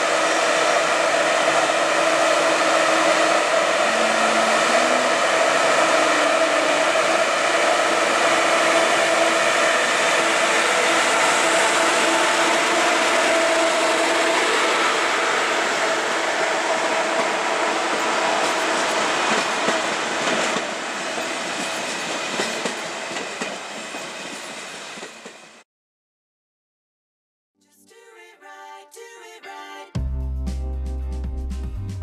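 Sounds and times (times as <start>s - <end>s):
train cars rolling past: 0.0s - 25.6s
wheels clacking over rail joints: 17.0s - 25.5s.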